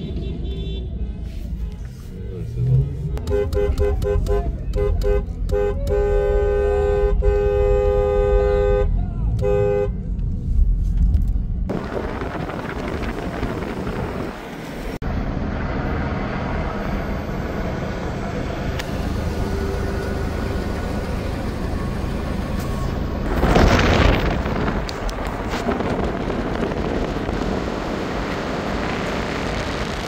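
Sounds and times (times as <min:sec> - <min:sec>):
outdoor street noise: 0:00.0 - 0:30.0
wind buffeting microphone: 0:11.0 - 0:15.0, 0:23.2 - 0:30.0.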